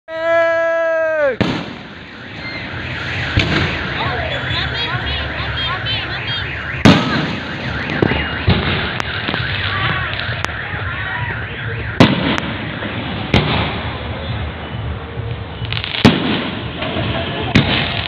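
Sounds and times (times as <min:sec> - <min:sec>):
fireworks bursting: 0:01.3 - 0:14.4, 0:15.2 - 0:18.0.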